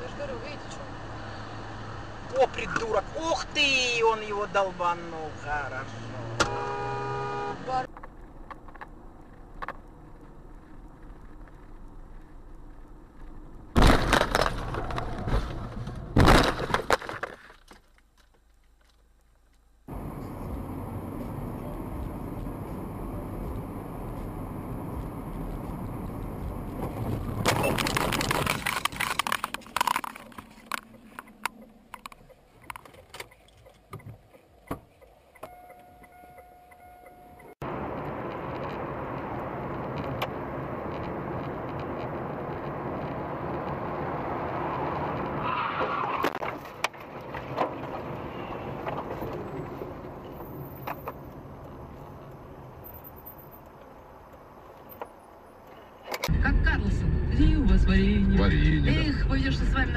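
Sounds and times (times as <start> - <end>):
road noise inside car: 0.0 - 17.1, 18.0 - 59.9
loud car impact: 13.7 - 17.1
crunching and breaking glass: 13.8 - 15.1.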